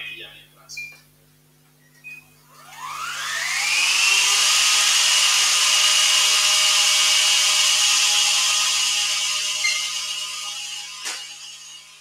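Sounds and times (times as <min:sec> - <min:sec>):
food processor whine: 0:02.5 - 0:12.0.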